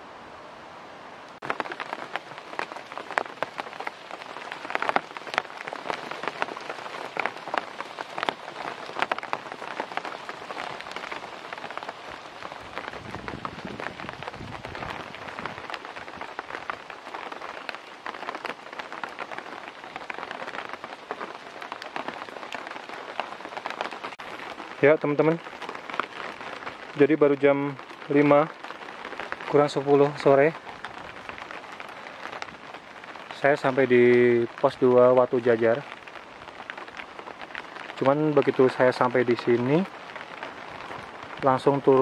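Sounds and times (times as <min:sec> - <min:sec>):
rain pattering on leaves: 0:01.2 - 0:42.0.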